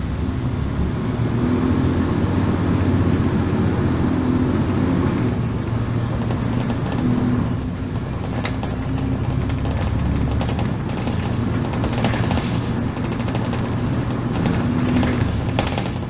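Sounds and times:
bus diesel engine running: 0:00.0 - 0:16.0
road and cabin noise: 0:00.0 - 0:16.0.

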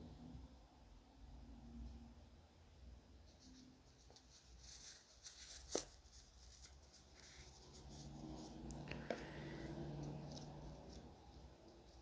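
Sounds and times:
soft rustling of packaging: 0:03.2 - 0:12.0.

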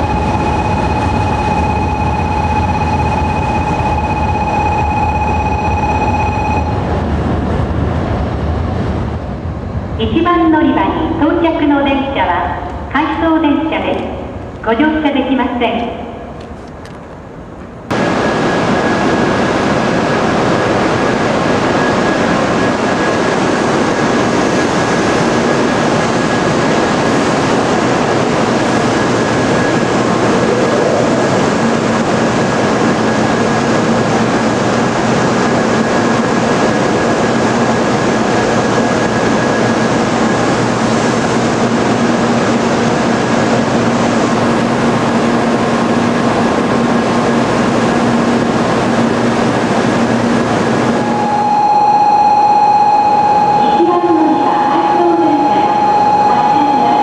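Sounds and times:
train equipment noise: 0:16.2 - 0:17.9
faint high whine: 0:28.2 - 0:32.4, 0:49.6 - 0:57.0
low hum: 0:28.2 - 0:33.4, 0:38.5 - 0:57.0.

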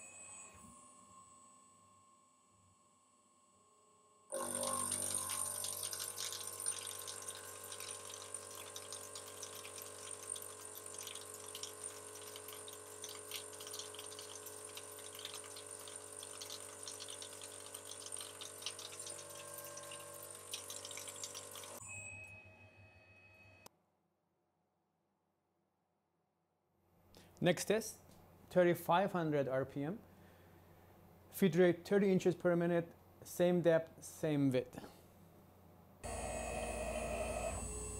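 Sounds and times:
milling cutter whining: 0:36.0 - 0:37.9.

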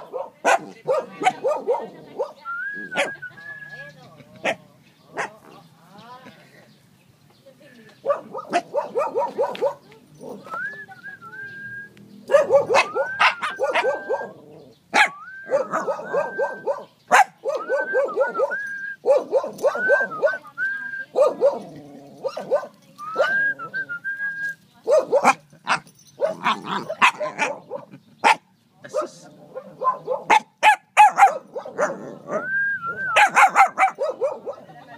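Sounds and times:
puppy yapping barks: 0:00.0 - 0:03.2, 0:08.0 - 0:10.6, 0:12.3 - 0:20.4, 0:21.1 - 0:23.4, 0:24.8 - 0:32.5, 0:33.1 - 0:34.7.

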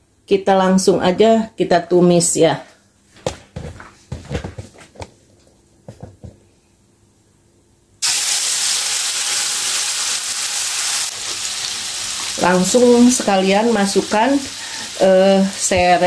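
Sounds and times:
paste sizzling in hot oil: 0:08.0 - 0:16.0.

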